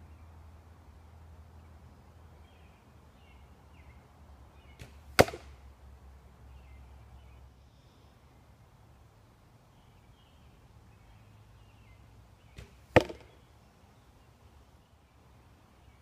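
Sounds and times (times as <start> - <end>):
faint birds chirping: 0.0 - 16.0
arrow smacking into target: 4.8 - 5.6, 12.6 - 13.3
distant bow snap: 4.8 - 5.6, 12.5 - 13.4.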